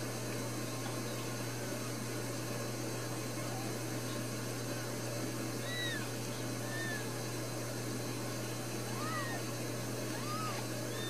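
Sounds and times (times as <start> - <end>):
steady low hum: 0.0 - 11.0
kittens mewing: 5.6 - 7.3, 8.6 - 11.0.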